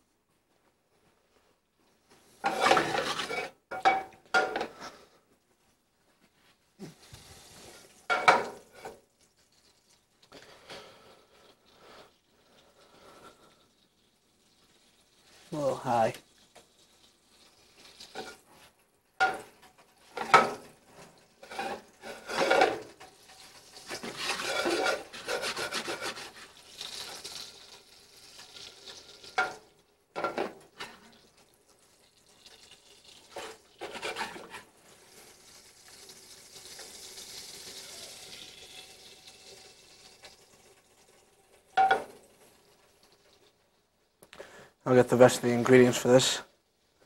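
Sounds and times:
faint sizzle in a saucepan: 0:00.0 - 0:47.0
metal pots knocking: 0:02.4 - 0:04.8, 0:08.1 - 0:08.6, 0:19.2 - 0:20.6, 0:41.8 - 0:42.2
spoon scraping in a pan: 0:02.4 - 0:05.1, 0:07.0 - 0:09.0, 0:18.0 - 0:27.6, 0:33.3 - 0:34.9, 0:41.7 - 0:42.2.

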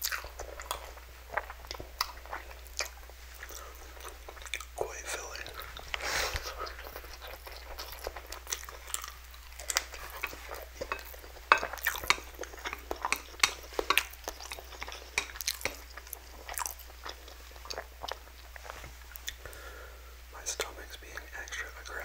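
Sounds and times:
chewing clicks and smacks: 0:00.0 - 0:04.7, 0:06.9 - 0:18.2.

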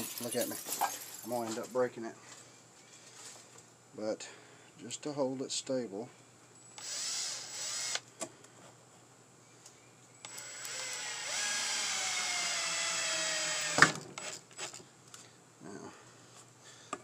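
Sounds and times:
cordless drill whining: 0:06.8 - 0:08.0, 0:10.2 - 0:14.7.

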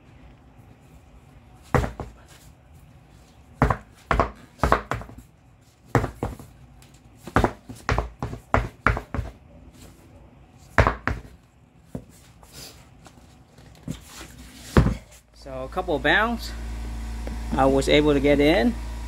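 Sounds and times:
tire bouncing on floor: 0:01.7 - 0:02.2, 0:03.6 - 0:05.3, 0:05.9 - 0:06.6, 0:07.2 - 0:09.4, 0:10.7 - 0:12.2, 0:14.7 - 0:15.2.

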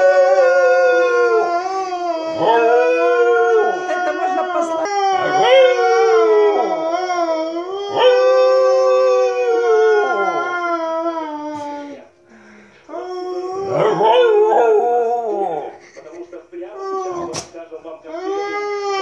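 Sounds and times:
dog howling: 0:00.0 - 0:12.1, 0:12.9 - 0:15.8
person howling: 0:00.0 - 0:12.1, 0:12.9 - 0:15.8.

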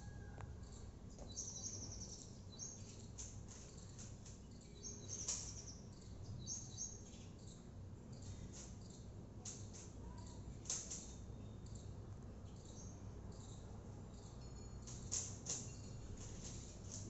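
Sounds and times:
bird chirping: 0:00.0 - 0:09.1.

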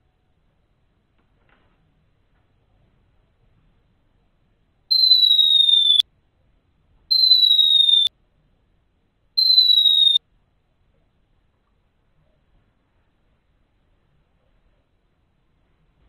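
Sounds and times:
falling bomb whistle: 0:04.9 - 0:06.0, 0:07.1 - 0:08.1, 0:09.4 - 0:10.2.

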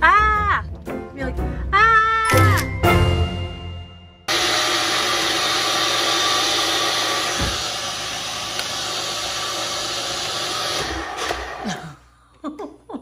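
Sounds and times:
blender running at full speed: 0:04.3 - 0:12.0.

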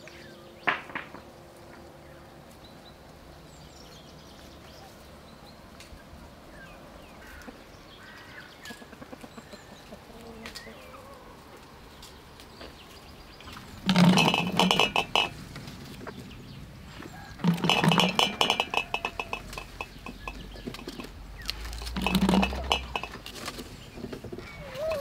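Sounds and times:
fruit slices clinking against glass: 0:13.8 - 0:15.4, 0:17.4 - 0:23.4.

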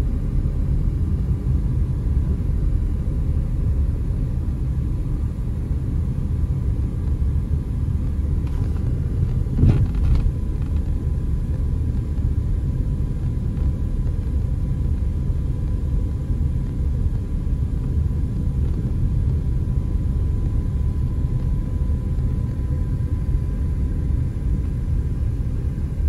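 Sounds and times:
car cabin road rumble: 0:04.9 - 0:23.2.

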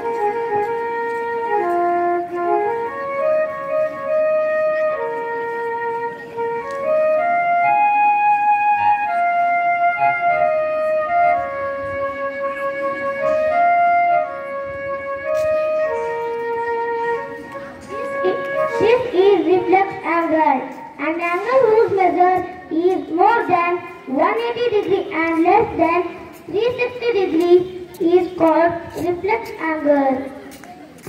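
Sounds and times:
slow flute melody: 0:00.0 - 0:20.0.

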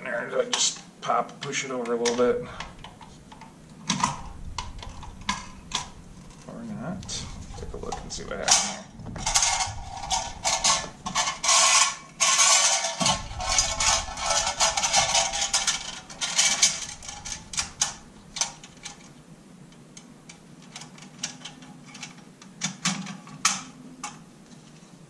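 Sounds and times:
magazine parts clicking and rattling: 0:07.9 - 0:19.2, 0:19.8 - 0:24.7.

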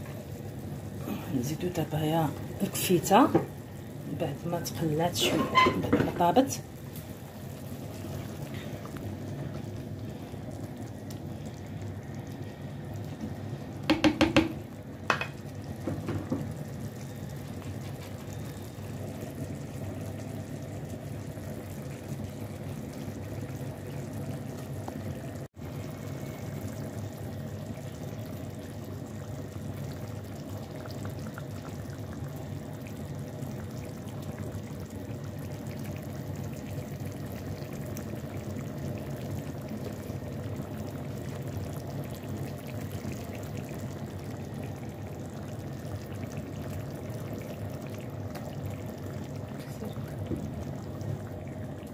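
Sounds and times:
sauce bubbling: 0:00.0 - 0:51.9
sharp knocks: 0:13.9 - 0:14.6.

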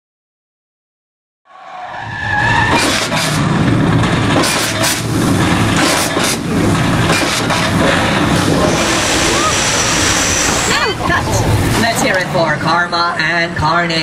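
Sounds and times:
car engines revving hard: 0:01.9 - 0:12.7
sharp hissing blasts: 0:04.4 - 0:12.0
tyres squealing: 0:05.8 - 0:12.4.

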